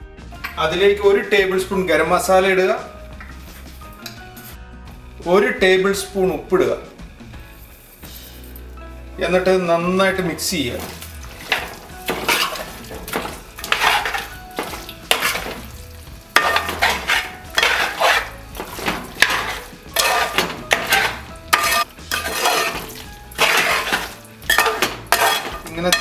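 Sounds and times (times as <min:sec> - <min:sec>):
spoon scraping metal pan: 0:10.6 - 0:26.0.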